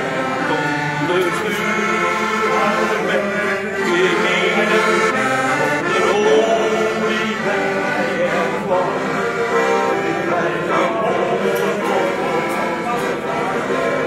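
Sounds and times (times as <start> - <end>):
accordion playing: 0.0 - 14.0
man singing: 0.0 - 14.0.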